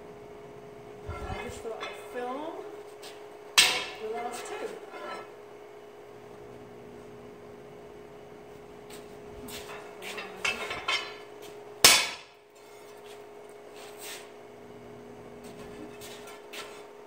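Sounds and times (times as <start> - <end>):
steady low hum: 0.0 - 17.0
steel bar clanking on anvil: 3.6 - 4.3, 11.8 - 12.3.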